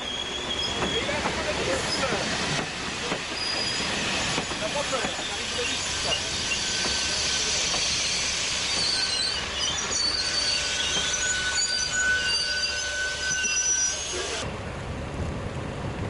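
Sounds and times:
train wheels rumbling: 0.0s - 16.0s
high-pitched wheel squeals: 5.2s - 14.4s.

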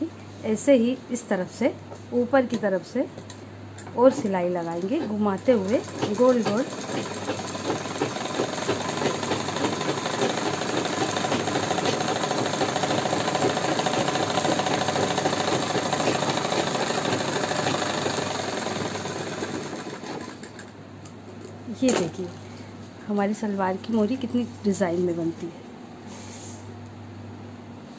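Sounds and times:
sewing machine running: 5.0s - 20.7s.

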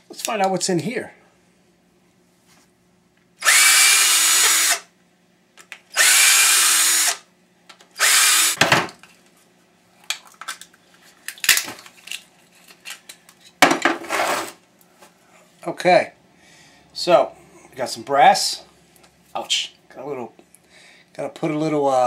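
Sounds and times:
power drill whining: 3.4s - 4.9s, 5.9s - 7.2s, 8.0s - 8.6s.

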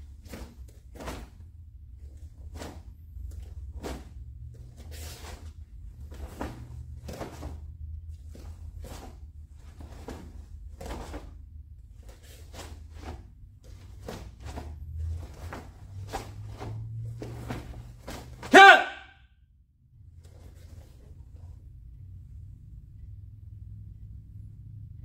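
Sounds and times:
uniform snapping swishes: 0.1s - 1.4s, 2.1s - 11.4s, 12.0s - 18.6s.

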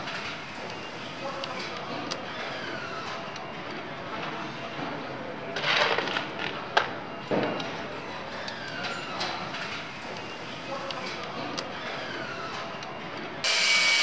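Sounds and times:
assembly hall background noise: 0.0s - 14.0s
plastic rustling and clacking: 5.6s - 7.8s.

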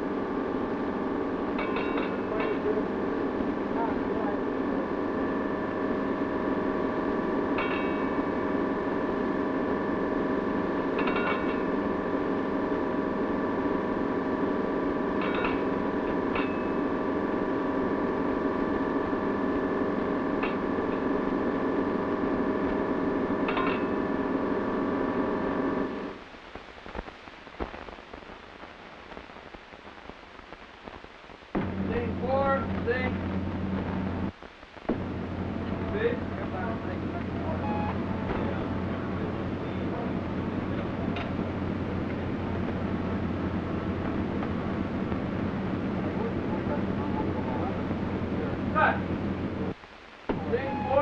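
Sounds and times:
ship engine droning: 0.0s - 26.2s, 31.6s - 51.0s
telegraph ringing signals: 37.3s - 41.6s.

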